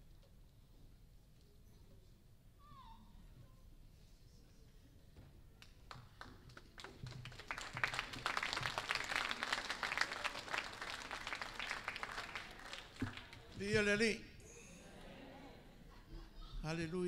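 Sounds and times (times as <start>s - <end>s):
audience applause: 6.2s - 13.7s.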